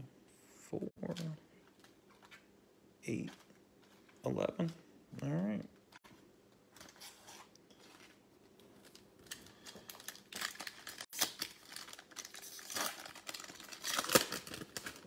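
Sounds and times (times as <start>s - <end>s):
foil wrapper crinkling and tearing: 6.8s - 15.0s.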